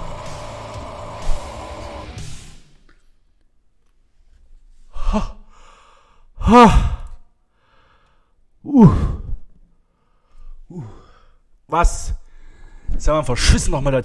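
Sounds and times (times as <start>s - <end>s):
man exclaiming ha: 6.4s - 7.1s.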